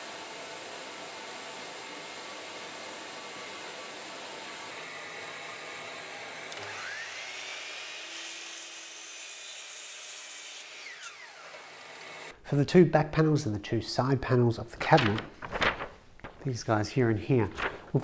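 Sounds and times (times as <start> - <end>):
mitre saw motor whining: 4.6 - 8.2, 10.6 - 12.3.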